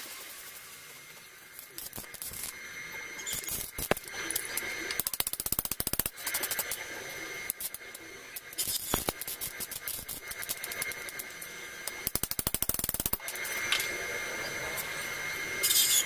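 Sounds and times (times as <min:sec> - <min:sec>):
ratchet clicking: 0:03.2 - 0:06.8, 0:07.5 - 0:13.9.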